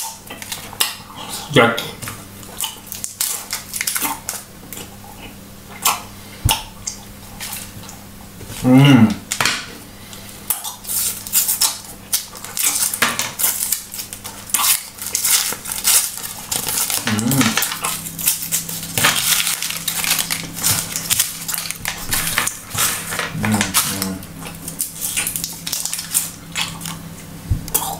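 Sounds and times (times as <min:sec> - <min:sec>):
person humming: 0:08.6 - 0:09.2, 0:17.0 - 0:17.7, 0:23.3 - 0:24.4
paper wrappers crinkling and tearing: 0:10.8 - 0:27.0.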